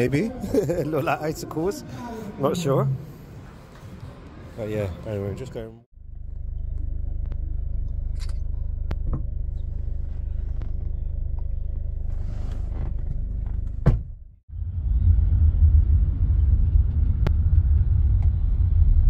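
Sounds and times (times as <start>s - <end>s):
van interior rumble: 5.9s - 19.0s.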